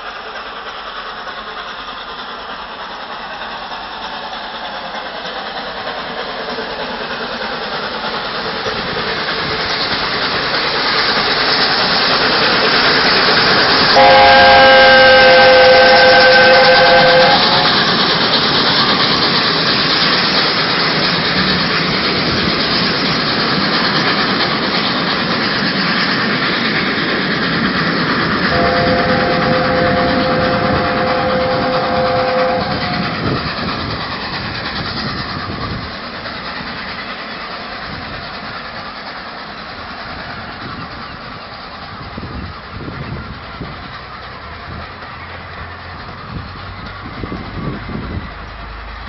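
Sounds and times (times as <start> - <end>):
train coaches rolling on rails: 0.0 - 49.0
steam locomotive chime whistle: 13.0 - 19.6, 28.4 - 33.4.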